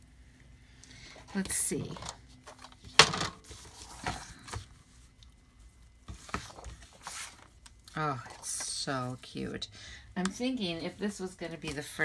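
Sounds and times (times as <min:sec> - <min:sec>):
paper rustling: 0:01.3 - 0:04.6, 0:06.1 - 0:09.4.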